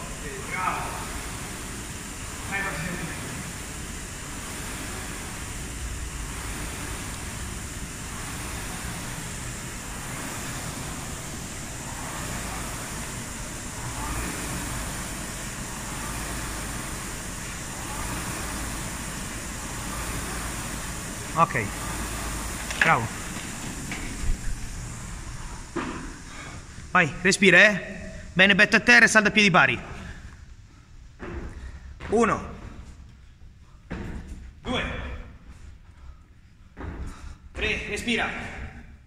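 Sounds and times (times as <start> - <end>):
rowing machine flywheel whooshing: 0.0 - 26.9.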